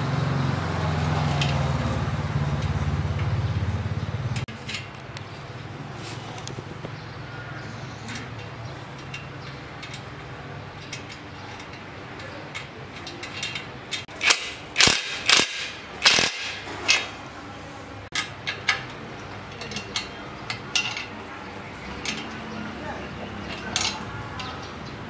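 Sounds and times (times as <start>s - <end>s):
metal tools clinking: 8.0s - 17.2s, 18.1s - 22.7s, 23.3s - 24.6s
sharp metallic clacks: 10.8s - 17.1s.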